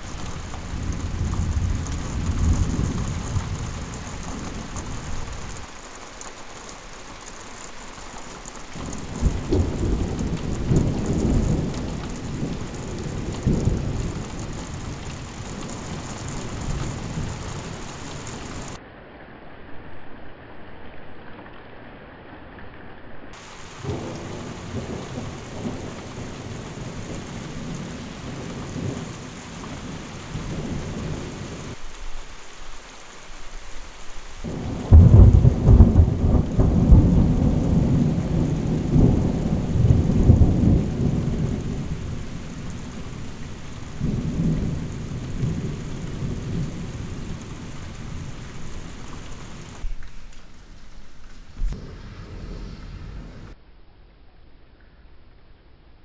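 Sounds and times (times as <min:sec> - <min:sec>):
loud thunderclap: 0:00.0 - 0:05.6, 0:08.8 - 0:18.8, 0:23.4 - 0:31.8, 0:34.4 - 0:49.0, 0:51.6 - 0:53.6
rolling thunder: 0:00.0 - 0:05.7, 0:08.7 - 0:18.8, 0:23.4 - 0:31.8, 0:34.4 - 0:50.0, 0:51.6 - 0:53.6
steady rain: 0:00.0 - 0:55.0.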